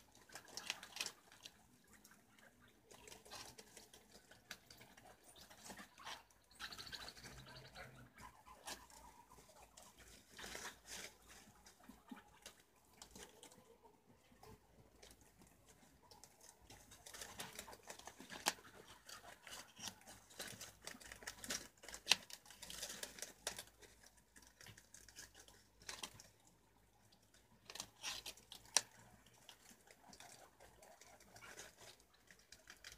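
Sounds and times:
leaves rustling: 0:00.0 - 0:13.7, 0:14.4 - 0:26.4
rodents gnawing on vegetables: 0:00.0 - 0:32.9.

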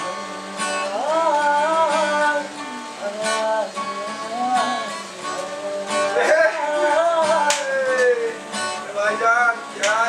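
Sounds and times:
acoustic guitar strumming: 0:00.0 - 0:10.0
man singing: 0:00.0 - 0:10.0
man laughing: 0:06.1 - 0:08.4
hand clap: 0:07.3 - 0:08.3, 0:09.8 - 0:10.0.

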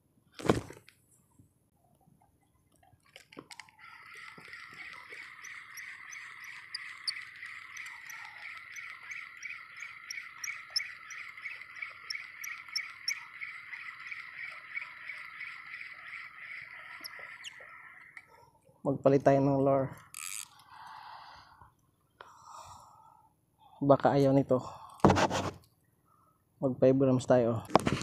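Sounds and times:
fishing reel whirring: 0:03.7 - 0:16.0, 0:20.1 - 0:20.6
reel light ticking: 0:03.8 - 0:17.6.

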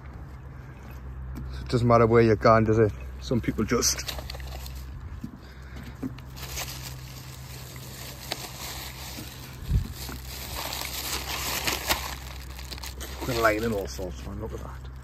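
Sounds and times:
plastic bag rustling: 0:03.8 - 0:04.9, 0:06.2 - 0:14.1.

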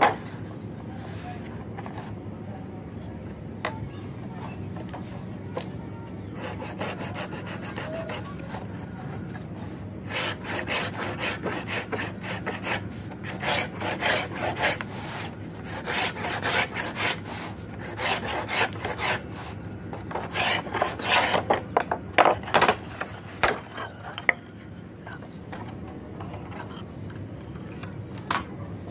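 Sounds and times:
cutter scraping wooden board: 0:06.2 - 0:09.2, 0:10.1 - 0:21.6.

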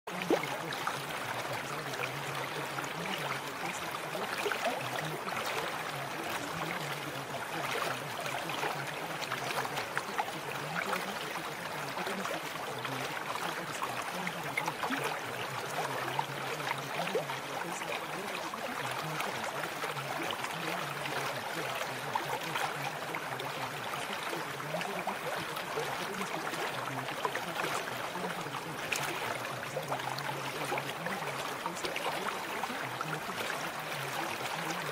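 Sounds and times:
flowing water: 0:00.0 - 0:34.9.

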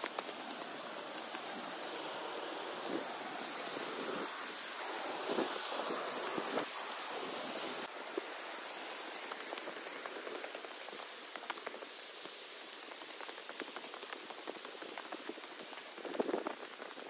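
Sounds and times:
stream rushing: 0:00.0 - 0:17.0
small ticks: 0:09.2 - 0:17.0.

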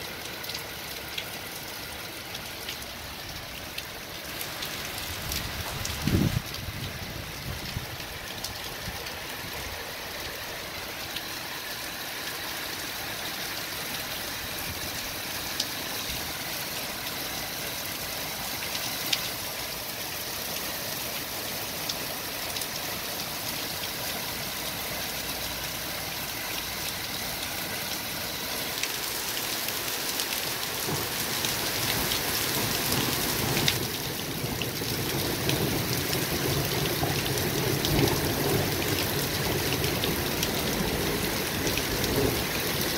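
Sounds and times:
heavy rain on paving: 0:00.0 - 0:42.9
sharp raindrop ticks: 0:18.0 - 0:19.8.

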